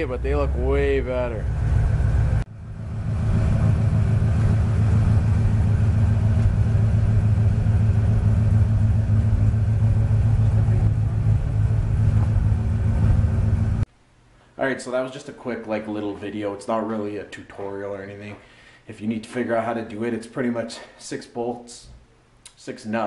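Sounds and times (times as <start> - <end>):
car engine idling: 0.0 - 13.9.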